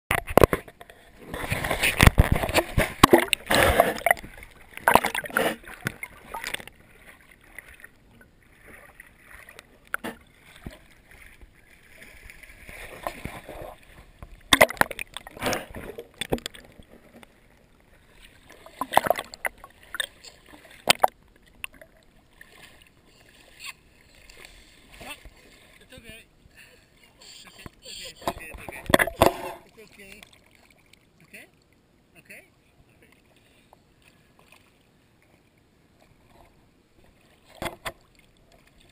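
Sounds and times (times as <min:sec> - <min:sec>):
splashing in shallow water: 0:01.2 - 0:26.1, 0:27.4 - 0:31.4.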